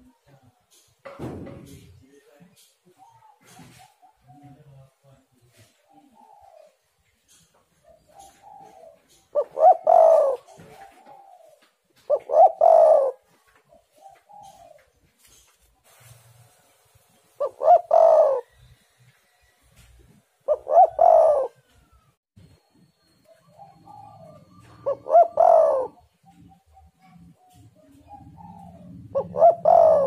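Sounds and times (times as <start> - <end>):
dove cooing: 2.9 - 4.8, 5.6 - 15.0, 17.4 - 18.7, 20.4 - 22.2, 23.1 - 30.0.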